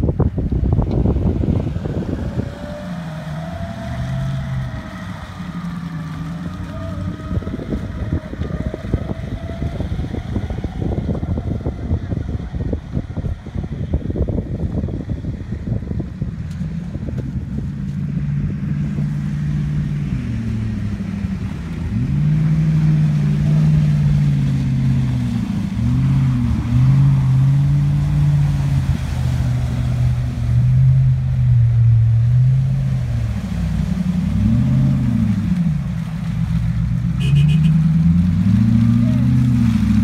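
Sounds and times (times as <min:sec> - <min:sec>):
car engine revving: 0:00.0 - 0:40.0
vehicle driving through water: 0:00.0 - 0:40.0.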